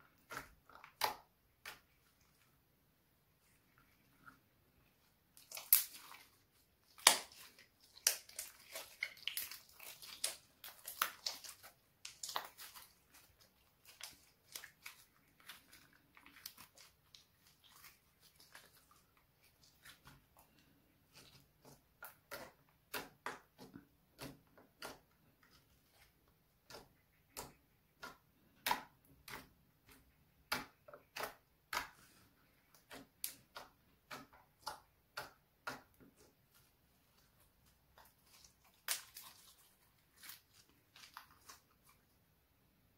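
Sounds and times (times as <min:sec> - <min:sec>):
slime squeezed with wet pops: 0:05.4 - 0:19.0.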